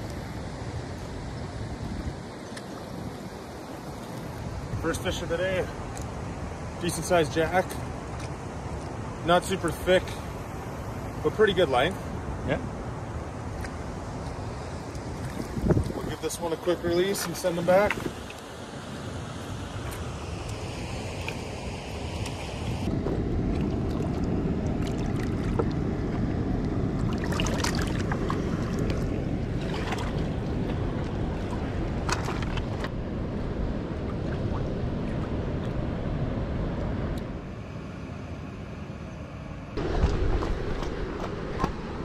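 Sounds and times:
wind buffeting microphone: 12.1s - 18.3s, 21.0s - 37.4s, 39.8s - 42.0s
water sloshing and splashing: 13.5s - 16.2s, 17.0s - 36.0s.

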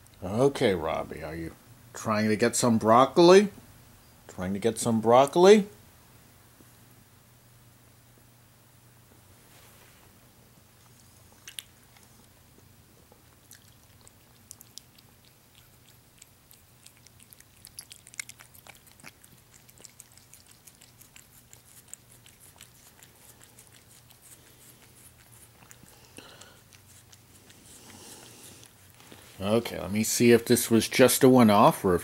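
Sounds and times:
cat chewing: 10.6s - 29.4s.

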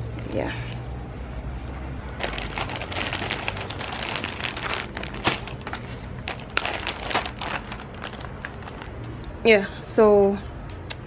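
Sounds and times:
packaging crinkling and tearing: 2.1s - 9.0s.

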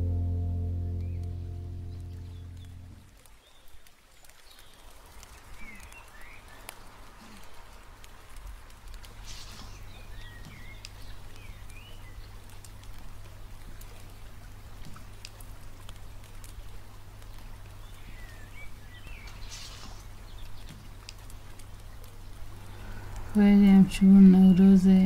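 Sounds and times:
faint steady hiss: 0.0s - 25.0s
drip-like clicks: 14.8s - 23.4s.

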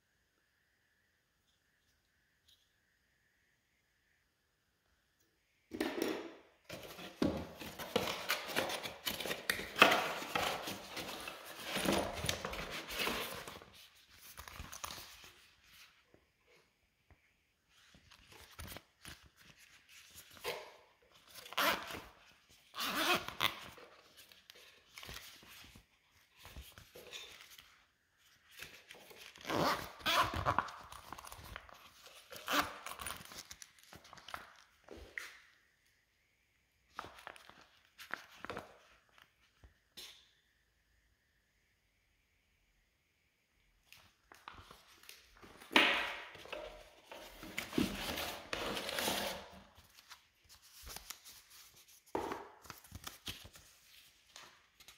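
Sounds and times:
packaging rustling and tearing: 6.7s - 15.5s, 28.5s - 34.8s.

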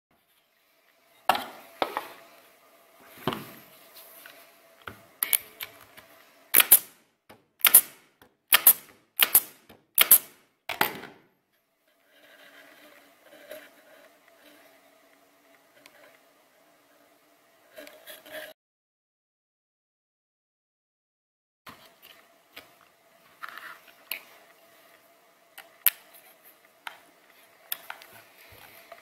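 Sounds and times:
nail gun firing into wood: 6.6s - 7.0s, 7.6s - 11.2s.

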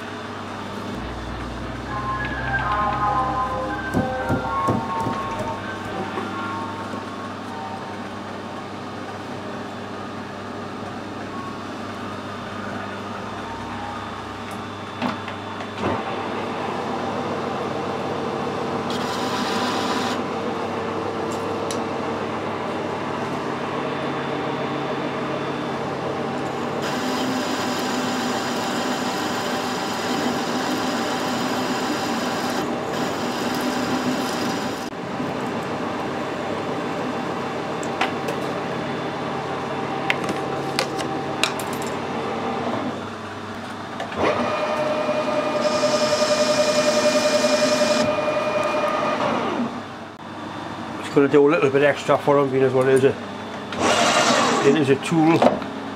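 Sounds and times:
metal lathe whining: 16.4s - 20.3s, 25.0s - 34.9s, 44.1s - 49.9s, 53.7s - 54.9s.

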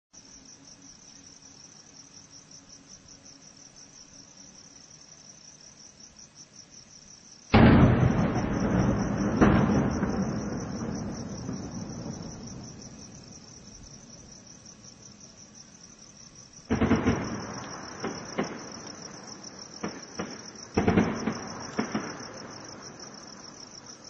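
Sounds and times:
crickets chirping: 0.2s - 24.0s
gunfire blasts and cracks: 7.5s - 12.7s, 16.7s - 19.1s, 19.8s - 22.7s.

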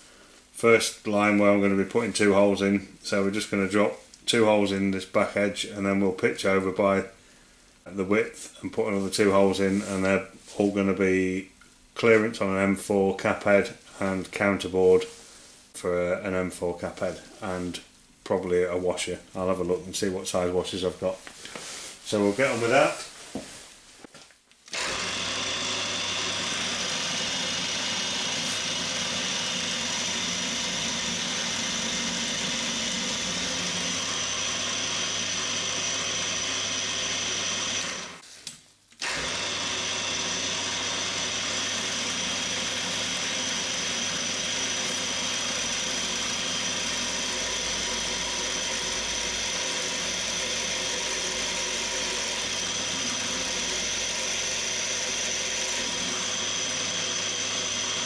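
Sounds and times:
drill boring into metal plate: 24.7s - 38.2s, 39.0s - 58.0s
mill-drill motor hum with high whine: 24.7s - 38.2s, 39.0s - 58.0s.

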